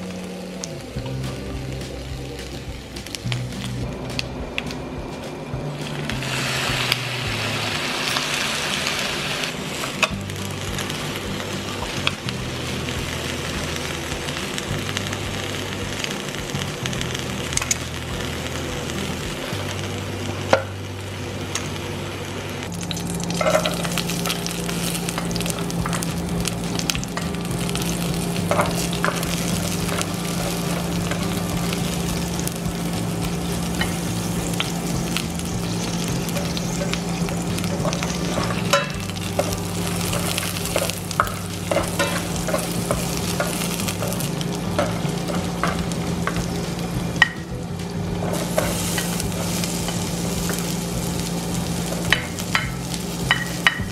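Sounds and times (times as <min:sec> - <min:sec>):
low steady hum: 0:00.0 - 0:53.9
oil sizzling in a pan: 0:00.0 - 0:53.9
utensil tapping cookware: 0:52.1 - 0:53.9.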